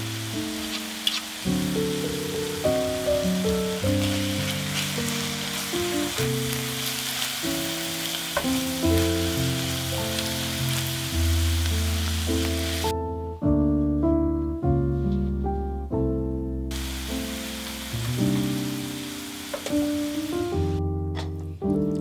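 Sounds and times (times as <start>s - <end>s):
vegetables sizzling in a frying pan: 0.0s - 12.9s, 16.7s - 20.8s
background music with held notes: 0.0s - 22.0s.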